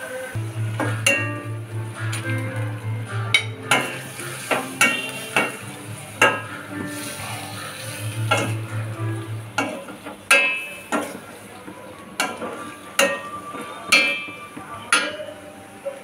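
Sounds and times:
food sizzling in a wok: 0:00.0 - 0:11.4
metal spatula scraping a wok: 0:03.7 - 0:08.6.

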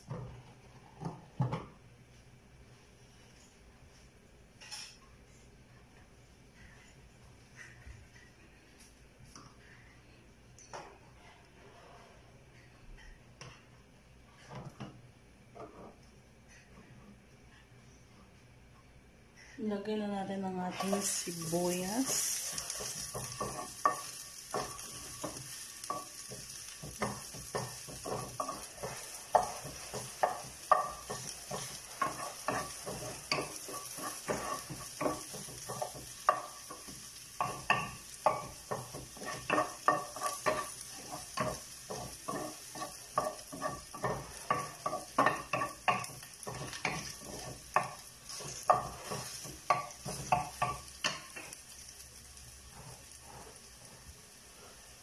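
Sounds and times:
onion sizzling: 0:19.5 - 0:55.0
wooden spoon scraping frying pan: 0:20.6 - 0:55.0.

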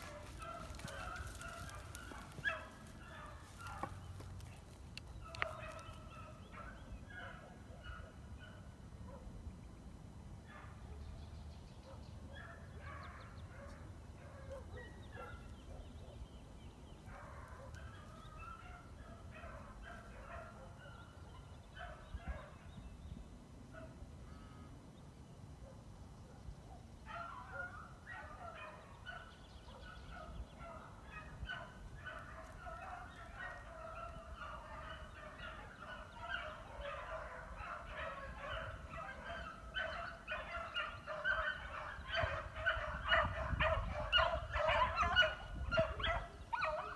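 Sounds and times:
dogs baying: 0:31.2 - 0:46.9.

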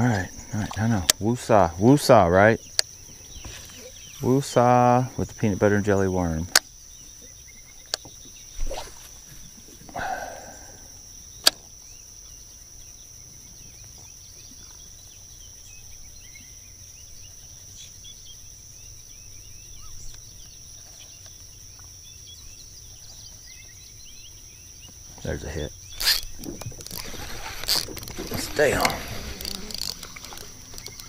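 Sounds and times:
high-pitched insect drone: 0:00.0 - 0:31.0
sharp clicks: 0:25.9 - 0:31.0.

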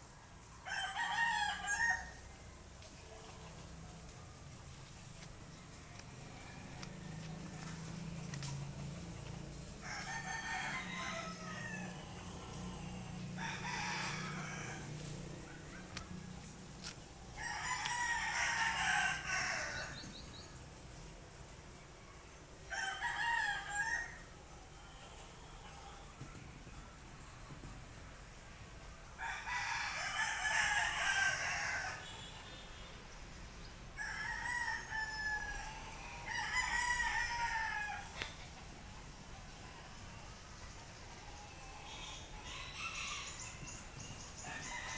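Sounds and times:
rooster crowing: 0:00.6 - 0:02.3, 0:09.7 - 0:20.1, 0:22.7 - 0:25.0, 0:29.2 - 0:32.2, 0:34.0 - 0:38.4, 0:41.8 - 0:44.9.

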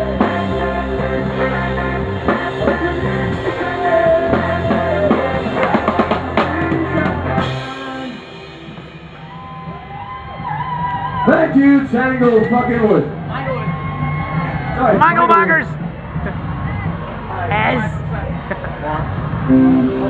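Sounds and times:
live rock band playing: 0:00.0 - 0:12.5, 0:19.3 - 0:20.0
drum kit: 0:00.0 - 0:20.0.

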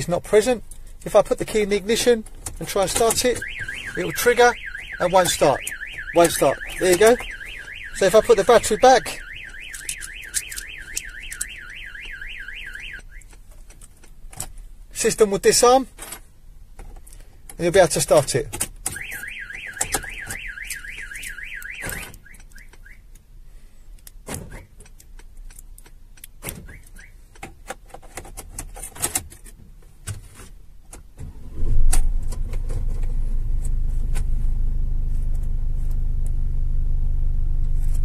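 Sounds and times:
van alarm warbling: 0:02.9 - 0:13.3, 0:18.9 - 0:23.0
scattered clicks: 0:08.3 - 0:12.1
diesel engine cranking and idling: 0:31.2 - 0:38.0.

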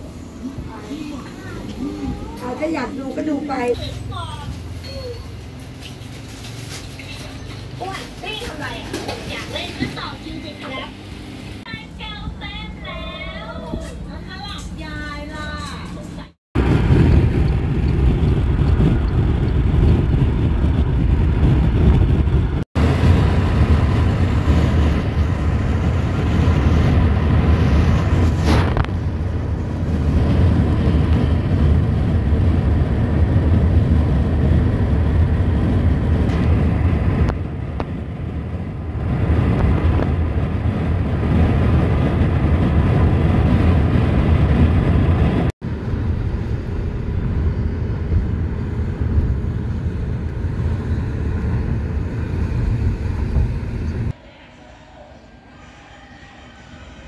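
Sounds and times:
road and tyre rumble in car: 0:03.7 - 0:10.8, 0:16.6 - 0:54.2.

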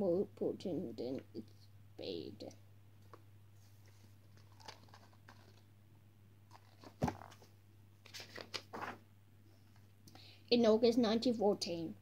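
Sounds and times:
book pages rustling: 0:03.1 - 0:05.6, 0:06.5 - 0:09.0.

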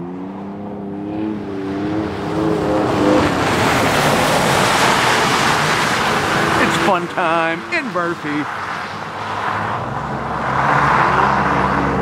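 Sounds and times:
truck engine humming: 0:01.8 - 0:08.6
tyres rushing on snow and slush: 0:02.0 - 0:09.8.

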